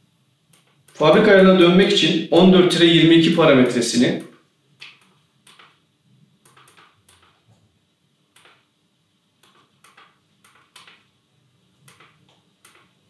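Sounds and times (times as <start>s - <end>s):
keypad buttons clicking: 6.4s - 7.3s, 9.4s - 11.0s.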